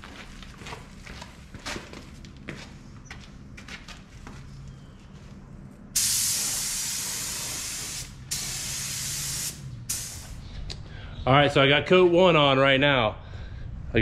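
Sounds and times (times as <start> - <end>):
paint spray gun hissing: 6.0 - 10.4.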